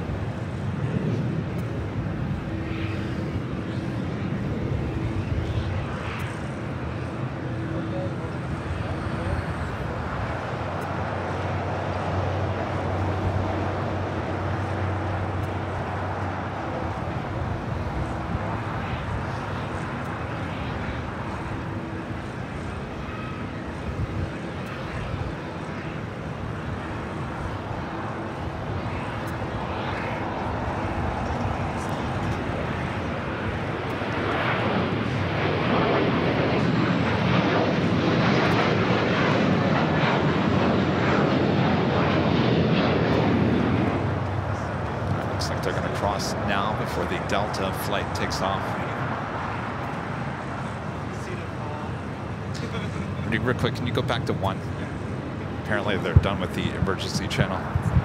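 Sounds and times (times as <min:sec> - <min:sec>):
jet engines rumbling: 0:00.0 - 0:58.0.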